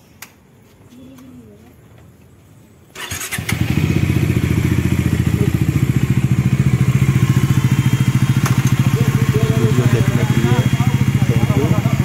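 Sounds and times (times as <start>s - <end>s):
motorcycle engine starting and idling: 2.9s - 12.0s.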